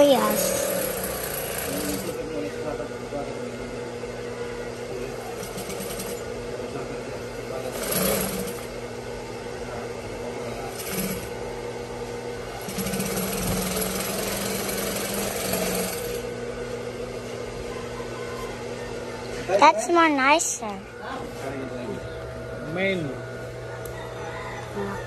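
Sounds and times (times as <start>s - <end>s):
sewing machine stitching: 0.0s - 2.2s, 5.3s - 6.2s, 7.6s - 8.7s, 10.7s - 11.3s, 12.6s - 16.3s
steady hum: 0.0s - 25.0s.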